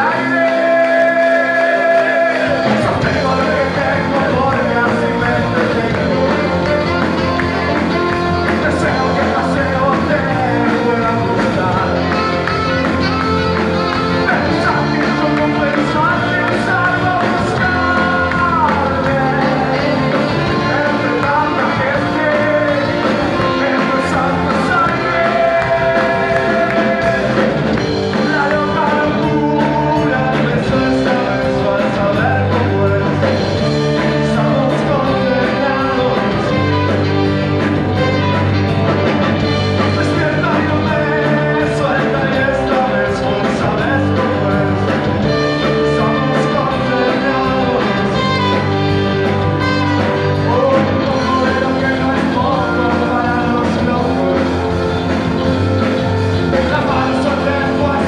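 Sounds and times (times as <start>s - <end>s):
person singing: 0.0s - 38.6s, 39.4s - 58.0s
drums: 0.0s - 58.0s
electric guitars: 0.0s - 58.0s
saxophone: 0.1s - 29.4s, 33.3s - 40.1s, 44.5s - 58.0s.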